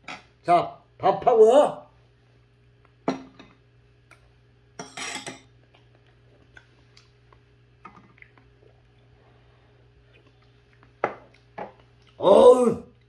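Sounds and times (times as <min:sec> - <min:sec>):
metal spoon clinking on ceramic bowls: 0:04.8 - 0:05.5.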